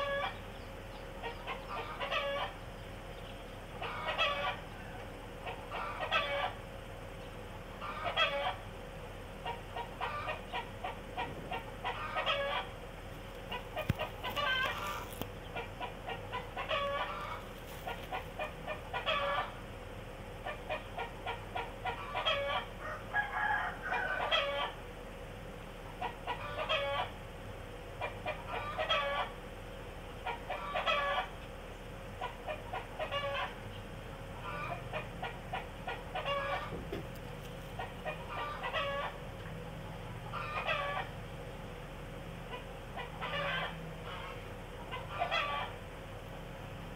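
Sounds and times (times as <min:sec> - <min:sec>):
chickens clucking: 0:00.0 - 0:25.0, 0:25.8 - 0:27.2, 0:27.8 - 0:41.7, 0:42.4 - 0:46.0
faint steady hum: 0:00.0 - 0:46.9.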